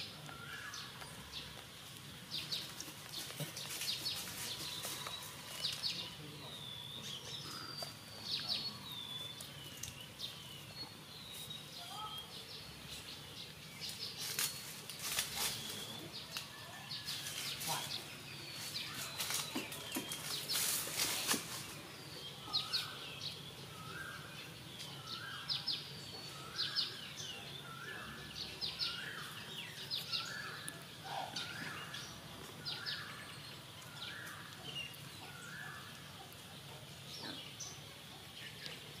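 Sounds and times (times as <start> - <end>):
crackling rustle: 0.0 - 6.4, 7.5 - 11.9, 12.8 - 23.0.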